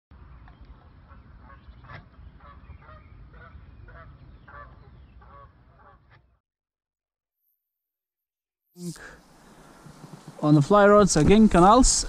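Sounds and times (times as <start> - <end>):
geese honking: 1.1 - 6.3.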